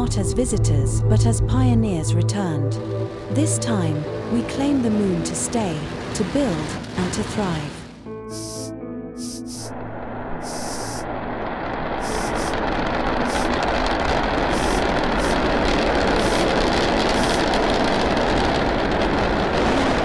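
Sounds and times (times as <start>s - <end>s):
rocket engine thrust: 8.3s - 20.0s.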